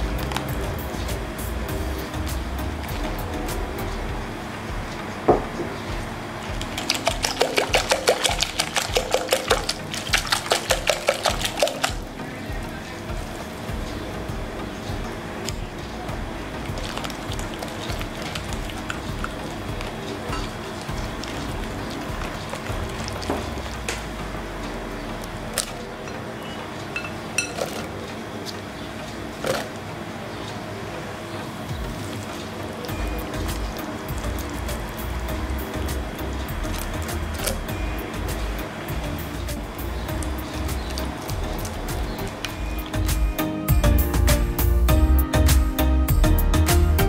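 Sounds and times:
whisk beating batter in glass bowl: 0:06.5 - 0:12.0, 0:16.7 - 0:23.7
utensil clinking against glass: 0:20.3 - 0:23.5, 0:25.6 - 0:27.9.

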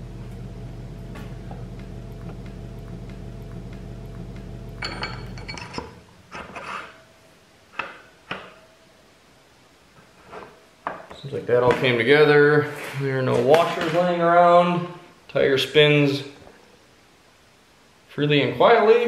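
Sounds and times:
steady low hum: 0:00.0 - 0:07.7
metal parts clinking: 0:04.8 - 0:06.4.

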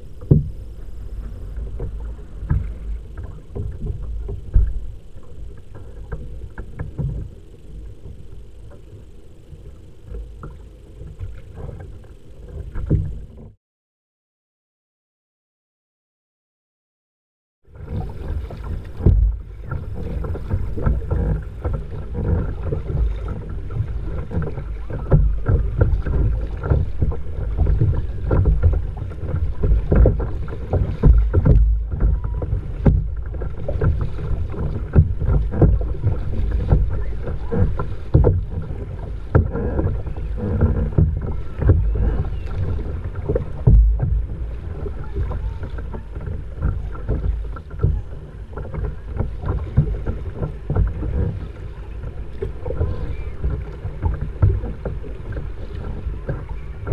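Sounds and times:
paddle splashing: 0:00.0 - 0:13.6, 0:17.7 - 0:56.9
water rushing along hull: 0:00.0 - 0:13.6, 0:17.7 - 0:56.9
wind buffeting microphone: 0:17.8 - 0:56.9.

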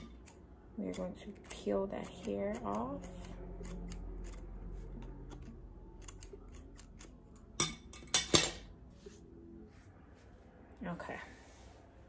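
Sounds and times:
scissors snipping hair: 0:00.0 - 0:07.6.

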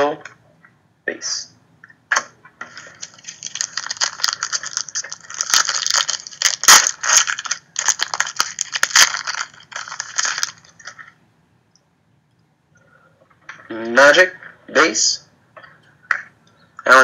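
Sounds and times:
foil wrapper crinkling: 0:02.7 - 0:11.2.

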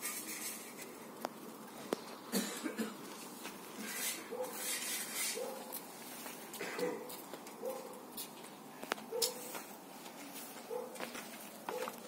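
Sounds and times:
dog sniffing: 0:04.3 - 0:05.7.

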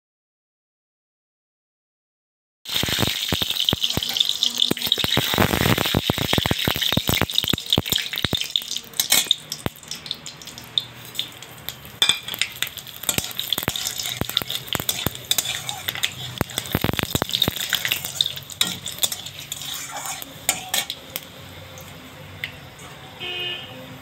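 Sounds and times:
spices sizzling and popping in oil: 0:02.7 - 0:22.7
metal spatula stirring: 0:06.8 - 0:21.3.

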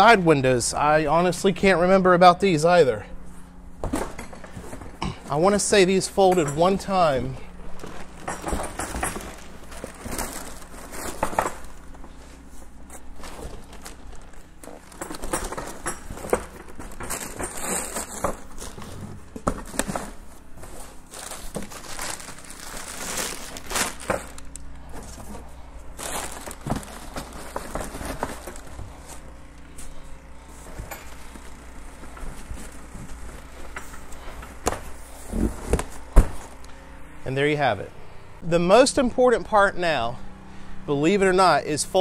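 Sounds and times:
vinyl windows rustling: 0:00.0 - 0:39.6
packing paper crinkling: 0:06.9 - 0:19.0, 0:19.6 - 0:29.3.

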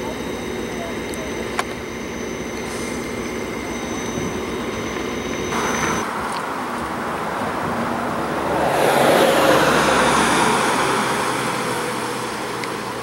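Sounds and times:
pickup truck driving past: 0:05.6 - 0:13.0.

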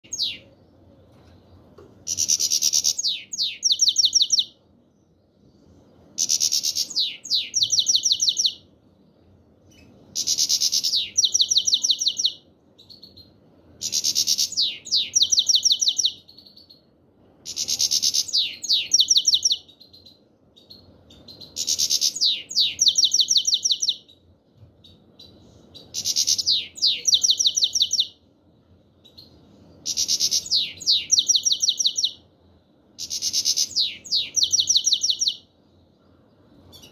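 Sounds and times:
goldfinch singing: 0:00.1 - 0:00.5, 0:02.1 - 0:04.5, 0:06.2 - 0:08.6, 0:09.7 - 0:16.7, 0:17.5 - 0:24.1, 0:25.2 - 0:28.2, 0:29.0 - 0:32.2, 0:33.0 - 0:35.4.

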